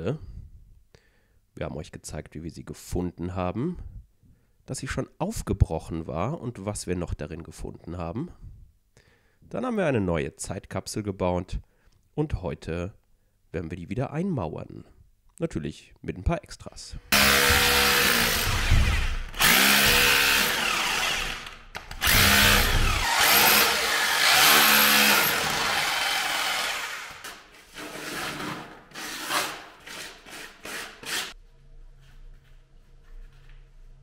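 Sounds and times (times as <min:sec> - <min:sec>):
hammer drill drilling into brick: 0:17.1 - 0:27.3.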